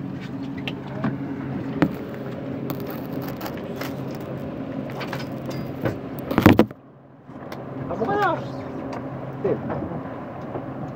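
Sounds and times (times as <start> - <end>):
boat engine running: 0.0 - 6.8.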